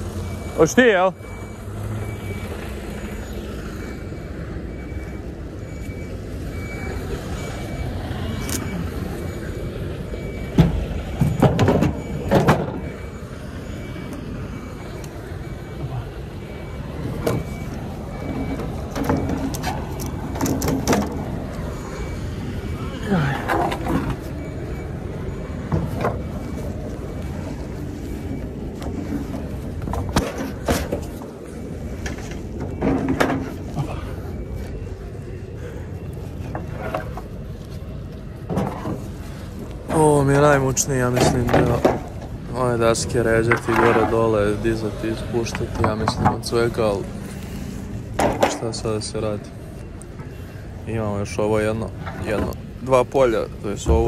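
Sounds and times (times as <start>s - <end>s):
diesel engine running: 0.0s - 54.0s
reversing alarm beeps: 0.0s - 54.0s
knocks and clanks of wood and metal: 10.2s - 13.1s, 17.0s - 21.7s, 23.3s - 24.6s, 25.5s - 27.3s, 28.2s - 34.1s, 36.4s - 37.4s, 38.4s - 40.2s, 41.0s - 42.4s, 43.0s - 44.4s, 45.4s - 46.6s, 48.1s - 48.8s, 53.8s - 54.0s.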